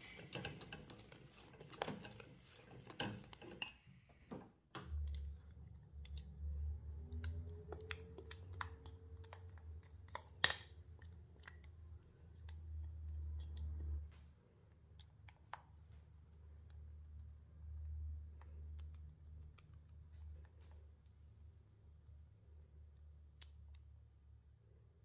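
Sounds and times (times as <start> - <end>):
whisk ticking against metal bowl: 0.0 - 3.6.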